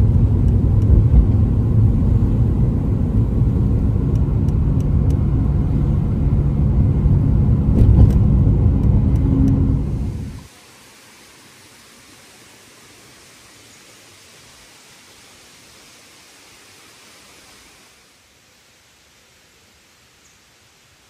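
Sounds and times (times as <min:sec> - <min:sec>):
car road rumble: 0:00.0 - 0:10.5.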